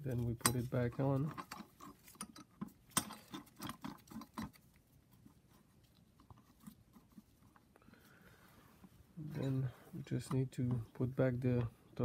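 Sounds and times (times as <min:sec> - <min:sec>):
small metal clicks and knocks: 0:00.0 - 0:04.8.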